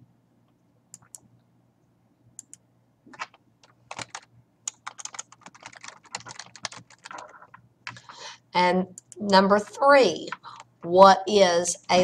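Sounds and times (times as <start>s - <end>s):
computer keyboard typing: 1.0s - 1.2s, 2.4s - 8.2s.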